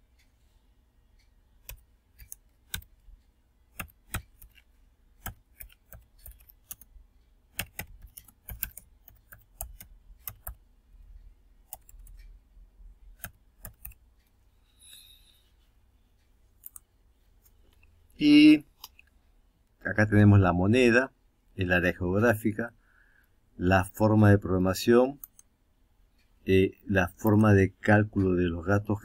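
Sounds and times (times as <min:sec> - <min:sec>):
keyboard typing: 0:01.6 - 0:03.1, 0:03.7 - 0:10.6, 0:11.6 - 0:12.2, 0:13.1 - 0:14.1.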